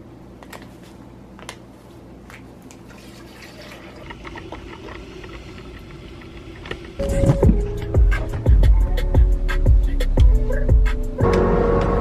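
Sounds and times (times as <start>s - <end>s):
coffee pouring into paper filter: 2.9s - 6.7s
coffee dripping into carafe: 2.9s - 6.8s.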